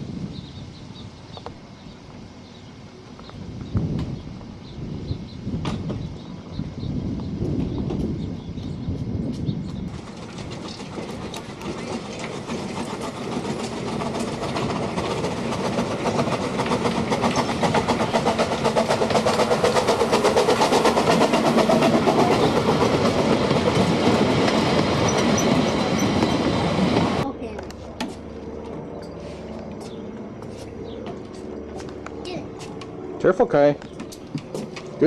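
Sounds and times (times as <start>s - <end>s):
miniature steam train clatter: 9.3s - 27.7s.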